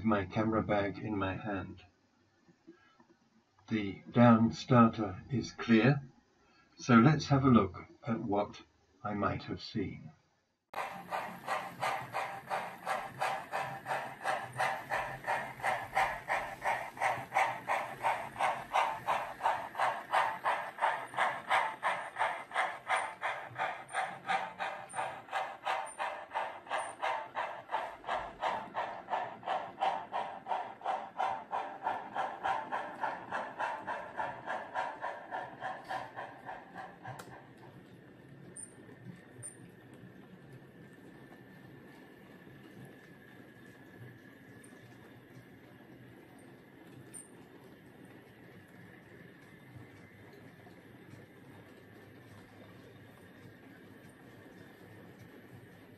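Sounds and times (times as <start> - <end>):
steam locomotive chuffing: 10.7 - 55.9
steady low hum: 10.8 - 46.4.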